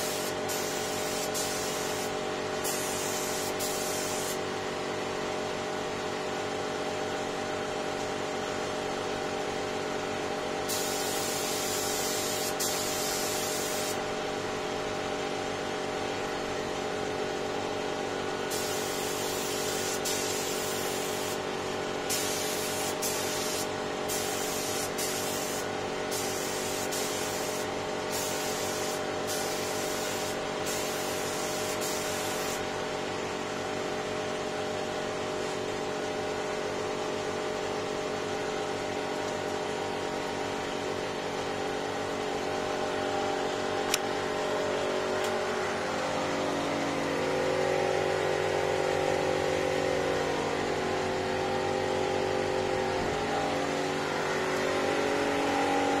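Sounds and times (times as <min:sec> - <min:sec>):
spray gun hissing: 0:00.0 - 0:04.4, 0:10.7 - 0:14.0, 0:18.5 - 0:21.4, 0:22.1 - 0:32.6.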